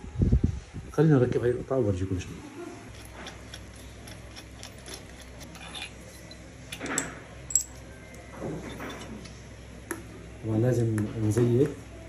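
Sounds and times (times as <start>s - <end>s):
metal parts clinking: 2.9s - 7.8s.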